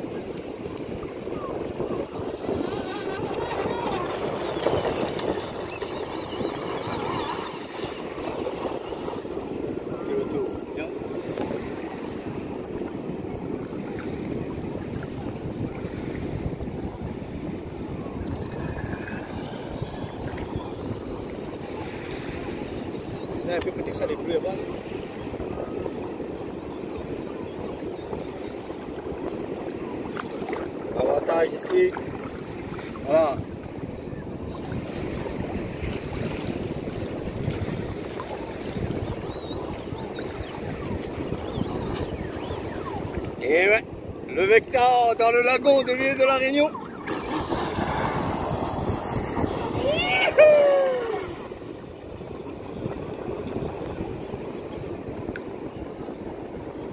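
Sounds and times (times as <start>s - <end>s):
small waves lapping: 0.0s - 55.8s
sea water washing: 0.0s - 56.9s
wind rumble on microphone: 0.0s - 56.9s
faint high wavering chirps: 39.2s - 43.2s.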